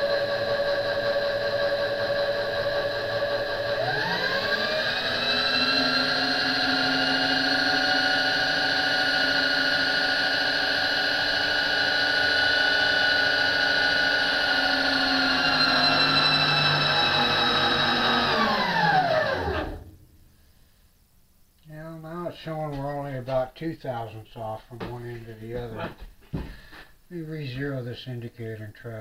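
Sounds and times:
electric motor whine: 0.0s - 20.0s.

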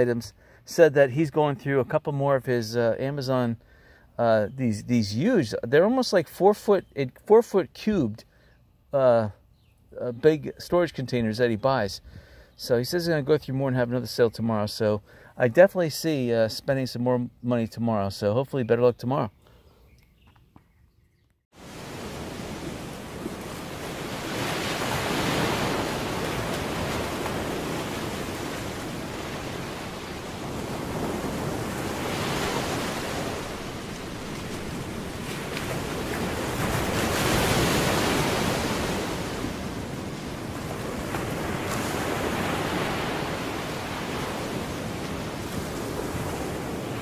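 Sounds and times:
ocean waves washing in: 21.6s - 47.0s.

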